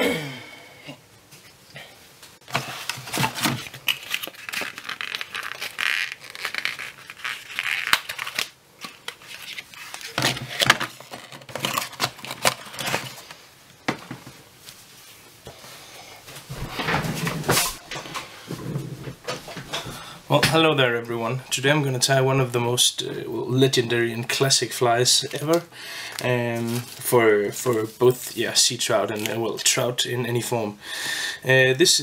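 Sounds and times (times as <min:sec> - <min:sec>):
crinkling and rustling: 0:02.3 - 0:15.6, 0:16.2 - 0:20.7, 0:25.2 - 0:28.3.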